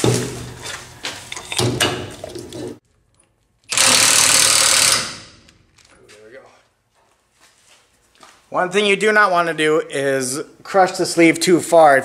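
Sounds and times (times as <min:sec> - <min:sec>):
cordless impact wrench running: 0:03.7 - 0:05.5.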